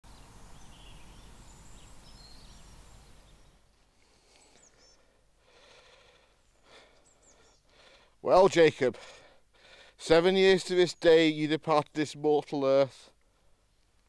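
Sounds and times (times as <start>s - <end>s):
small birds chirping: 0.0s - 8.2s
steady hiss: 0.1s - 5.6s.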